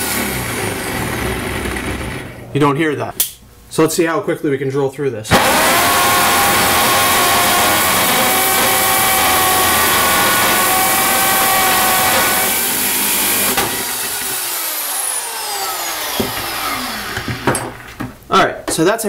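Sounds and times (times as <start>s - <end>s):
hammer drill boring into wood: 5.3s - 17.7s.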